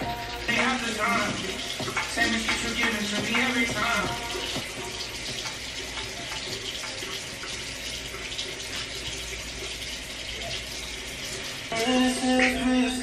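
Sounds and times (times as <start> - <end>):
tap water running into sink: 0.0 - 13.0.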